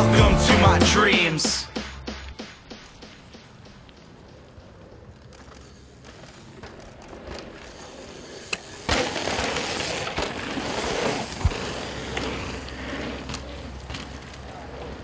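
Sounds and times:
bike hitting a jump: 2.5 - 14.9
bike tyres rolling on dirt: 2.6 - 15.0
tyres grinding on loose gravel: 3.4 - 15.0.

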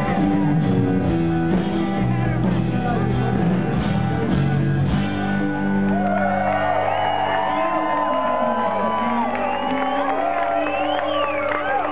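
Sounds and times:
crowd whooping and cheering: 0.0 - 1.0, 5.0 - 11.9
rock band with electric guitar: 0.0 - 11.9.

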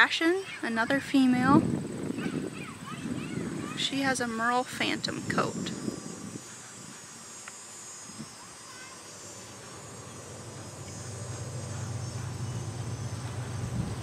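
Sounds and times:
insect chorus chirring: 0.0 - 14.0
low hum: 3.4 - 14.0.

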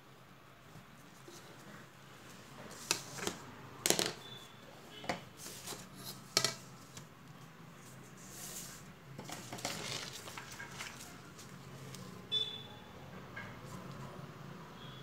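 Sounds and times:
paper rustling: 5.4 - 12.2.

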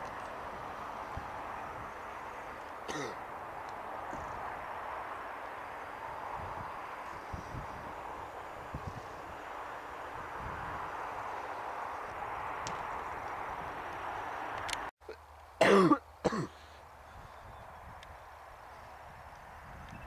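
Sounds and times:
steady rushing noise: 0.0 - 14.9
person clearing throat: 2.9 - 3.2, 15.6 - 16.6.

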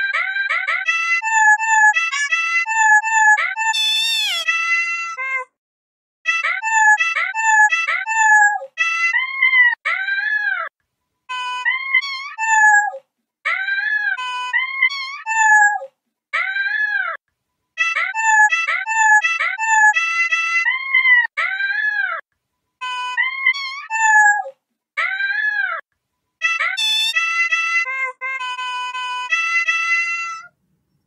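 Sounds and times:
cats meowing a melody: 11.6 - 13.0
cats meowing a tune: 11.6 - 13.0, 13.8 - 16.8.

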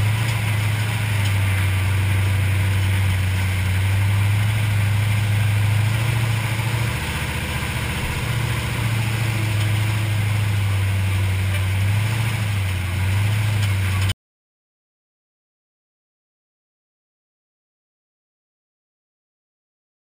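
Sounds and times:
truck engine droning: 0.0 - 14.2.

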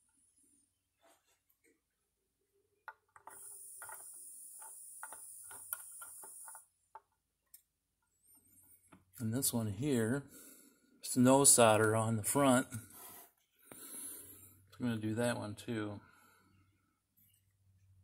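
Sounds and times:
soldering iron tapping and clicking: 2.9 - 7.1.

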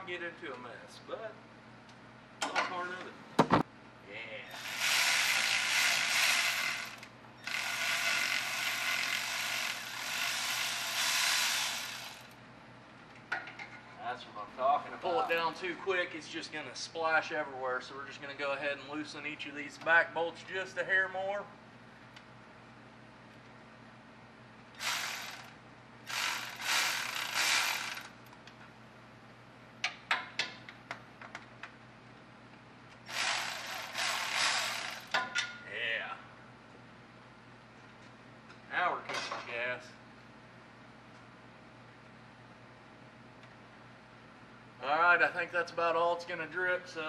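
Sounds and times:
ratchet wrench: 4.5 - 12.4, 24.8 - 25.5, 26.1 - 28.2, 33.1 - 35.2
ratchet wrench clicking: 26.1 - 28.2.

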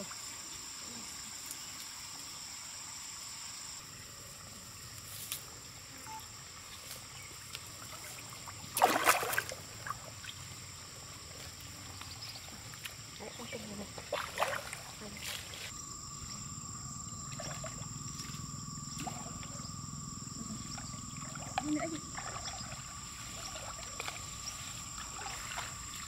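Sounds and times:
pond water trickling and splashing: 1.6 - 15.7, 20.7 - 26.0
loud splash: 8.7 - 9.6
steady high whine: 15.7 - 24.9.

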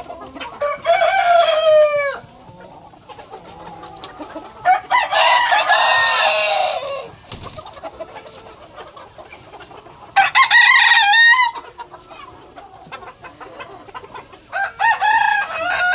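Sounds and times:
roosters crowing: 0.0 - 2.8, 3.5 - 7.3, 10.0 - 11.8, 14.4 - 15.9
chickens clucking softly: 0.0 - 15.9.

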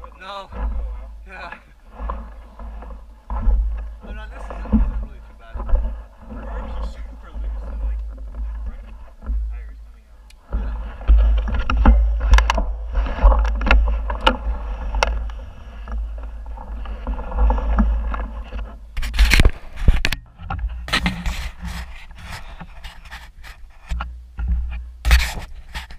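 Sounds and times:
bike tyres crunching on gravel: 0.0 - 20.0
bike rattling over bumps: 0.0 - 22.7.

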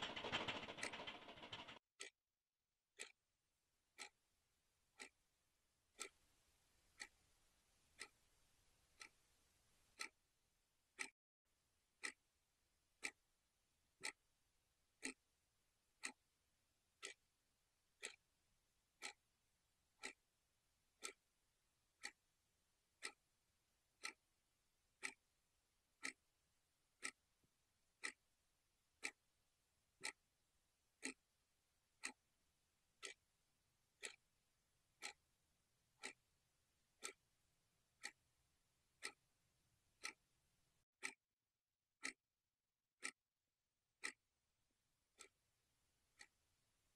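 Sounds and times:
clock ticking: 0.0 - 2.1, 3.0 - 3.2, 4.0 - 4.2, 4.9 - 5.2, 5.9 - 6.2, 6.9 - 7.2, 7.9 - 8.2, 8.9 - 9.2, 9.9 - 10.2, 10.9 - 11.2, 12.0 - 12.3, 13.0 - 13.4, 14.0 - 14.2, 14.9 - 15.3, 15.9 - 18.4, 19.0 - 29.3, 29.9 - 30.3, 30.9 - 40.4, 41.0 - 41.2, 42.0 - 42.2, 44.0 - 44.2, 45.1 - 46.6.

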